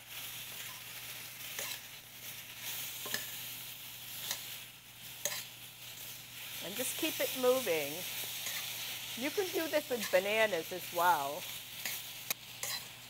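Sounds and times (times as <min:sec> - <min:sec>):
apple slices sizzling in sugar: 0:00.0 - 0:13.0
spoon clicking against a pan: 0:03.0 - 0:03.3.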